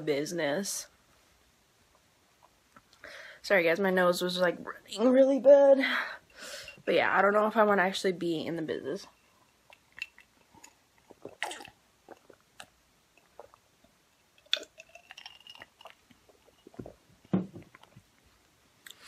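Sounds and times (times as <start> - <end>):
sipping and swallowing: 9.6 - 17.0
ice clinking against glass: 14.4 - 16.8.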